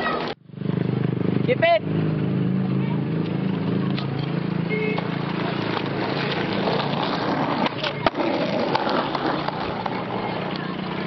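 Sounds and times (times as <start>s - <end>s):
skateboard wheels on rough concrete: 0.0s - 11.0s
skateboard clacking on ledge: 5.0s - 11.0s.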